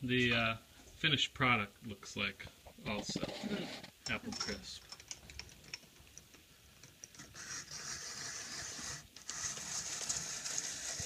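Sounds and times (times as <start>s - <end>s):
blade scraping apple peel: 7.3s - 11.0s.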